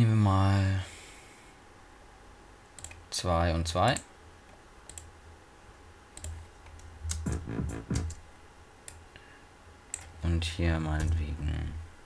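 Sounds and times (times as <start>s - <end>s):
low steady hum: 0.0s - 12.0s
computer mouse clicks: 2.8s - 3.0s, 4.9s - 5.1s, 6.2s - 8.2s.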